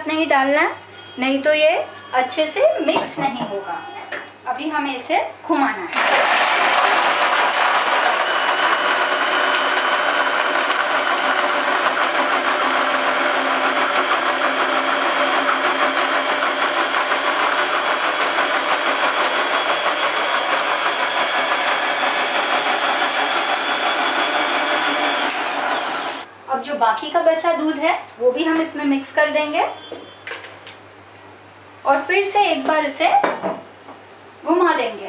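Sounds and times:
blender motor churning ice: 5.9s - 26.3s.

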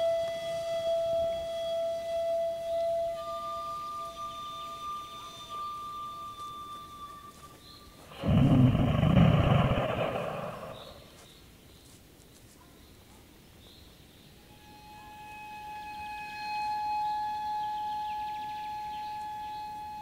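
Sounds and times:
deer stag roaring: 8.1s - 11.1s.

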